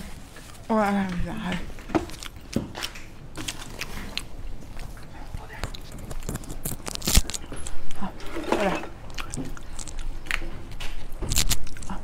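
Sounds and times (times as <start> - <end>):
wet chewing and lip smacks: 1.9 - 8.0, 9.0 - 12.0.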